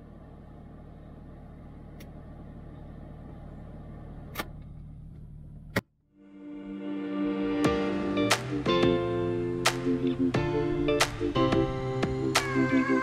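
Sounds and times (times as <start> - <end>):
off-road vehicle engine running: 0.0 - 5.9
music: 6.1 - 13.0.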